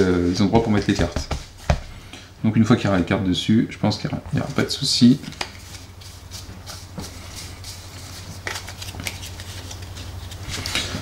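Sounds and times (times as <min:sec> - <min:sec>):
low steady hum: 0:00.0 - 0:11.0
cards tapping and sliding: 0:05.2 - 0:11.0.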